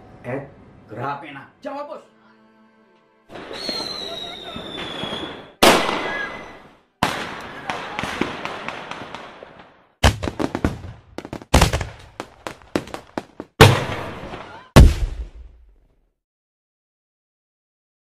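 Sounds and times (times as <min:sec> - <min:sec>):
fireworks crackling: 0:03.3 - 0:14.4
fireworks banging: 0:03.3 - 0:15.2.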